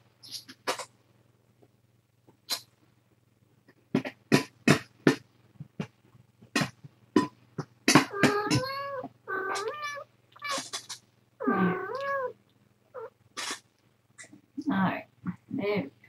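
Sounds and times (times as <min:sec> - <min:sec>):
kitten mewing: 0:07.9 - 0:12.4.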